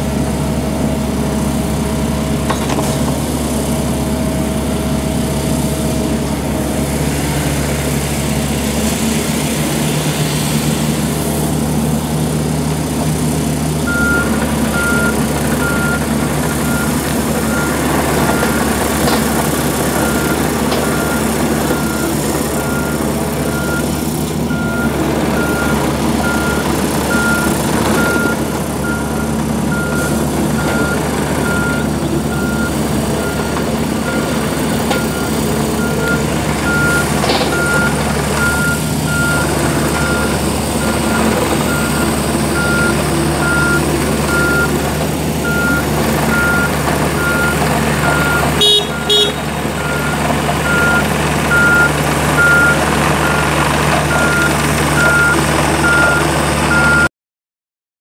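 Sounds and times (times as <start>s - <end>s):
excavator diesel engine running: 0.0s - 57.1s.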